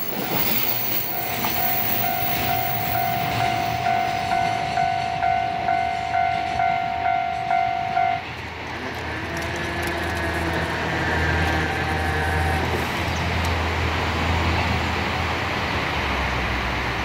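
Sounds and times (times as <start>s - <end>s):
level crossing bell clanging: 0.0s - 8.3s
vehicle rumble: 2.6s - 17.0s.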